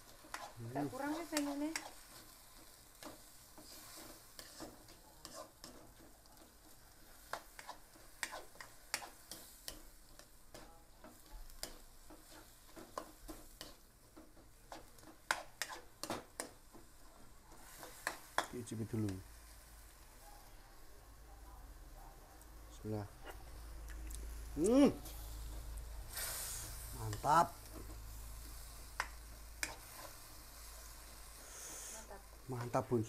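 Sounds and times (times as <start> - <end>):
spatula scraping and tapping a pan: 0.0 - 19.2, 27.1 - 30.9
faint sizzle in a wok: 0.0 - 33.0.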